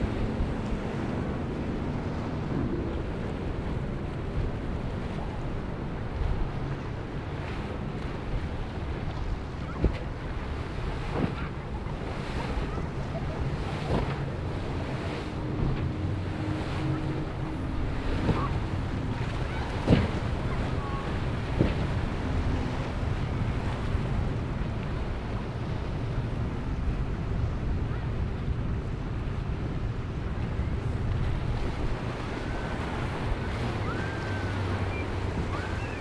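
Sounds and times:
rush of surf: 0:00.0 - 0:36.0
wind on microphone: 0:00.0 - 0:36.0
hull slamming onto waves: 0:09.5 - 0:25.3.

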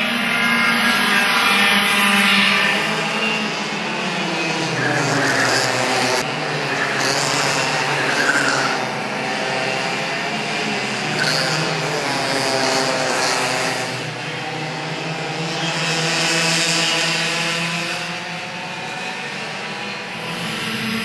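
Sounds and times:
kart engines at high revs: 0:00.0 - 0:21.0.

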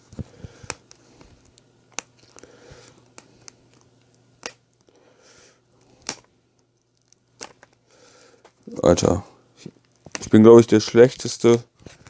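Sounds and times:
plastic film crinkling: 0:00.0 - 0:04.9, 0:08.5 - 0:12.0.

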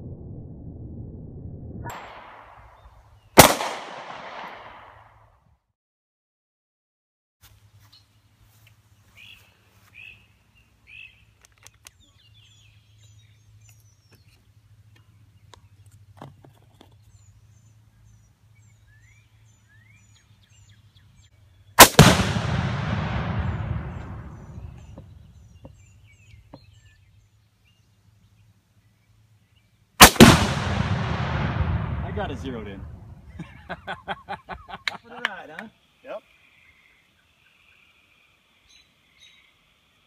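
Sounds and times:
target explosion boom: 0:00.0 - 0:02.7, 0:21.8 - 0:25.2, 0:30.0 - 0:33.4
rifle shot: 0:01.9 - 0:02.7, 0:03.4 - 0:05.1, 0:21.8 - 0:25.1, 0:30.0 - 0:33.3
faint birds chirping: 0:07.5 - 0:21.8, 0:23.1 - 0:30.0, 0:31.0 - 0:40.0.

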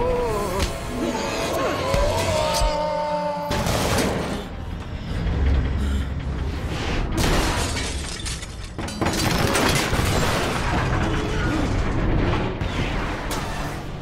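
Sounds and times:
film score music: 0:00.0 - 0:07.5.

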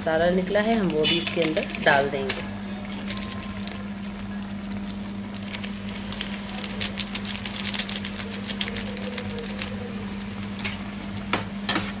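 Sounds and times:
low steady hum: 0:00.0 - 0:12.0
plastic sachet tearing: 0:04.5 - 0:10.6.

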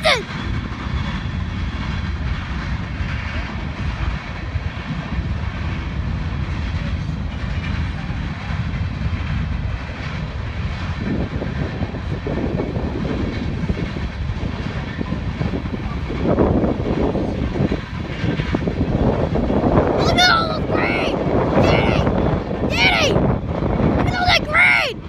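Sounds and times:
distant freight train rumble: 0:00.0 - 0:25.0.

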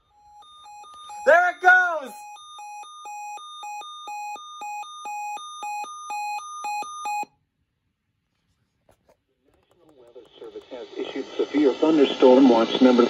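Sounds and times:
two-tone electronic alert beep: 0:00.0 - 0:07.3.

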